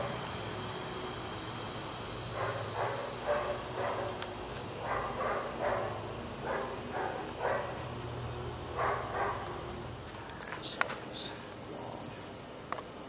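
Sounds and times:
steady low hum: 0.0s - 13.0s
dog barking: 2.4s - 4.2s, 4.8s - 7.9s, 8.7s - 9.6s.

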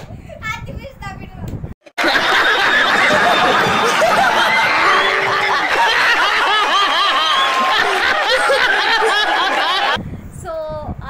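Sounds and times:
audience laughing hard: 1.9s - 10.0s.

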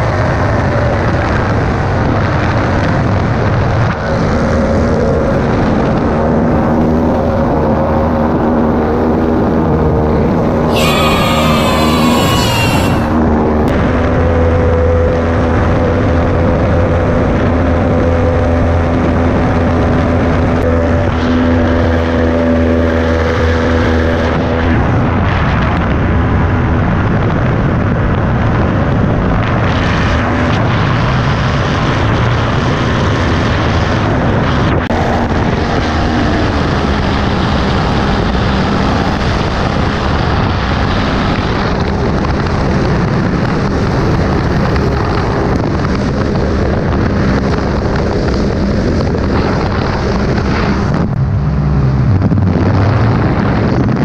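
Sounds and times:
wind rushing over microphone: 0.0s - 54.0s
propeller engine humming: 48.2s - 53.7s.

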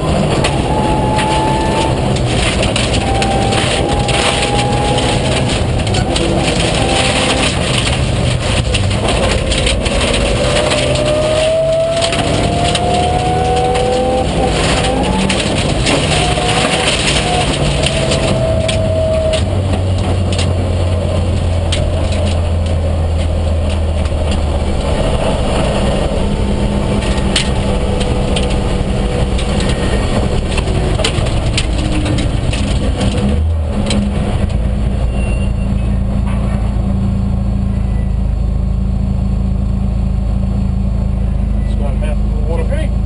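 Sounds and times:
rally car engine: 0.0s - 43.0s
stones clicking against car: 0.2s - 34.6s.

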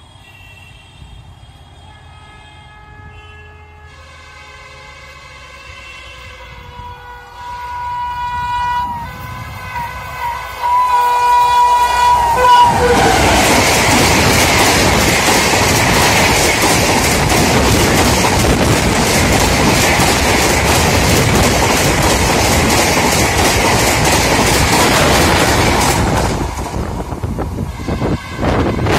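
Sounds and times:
train coaches passing at speed: 0.0s - 28.9s
wheels clacking over rail joints: 11.1s - 27.4s.

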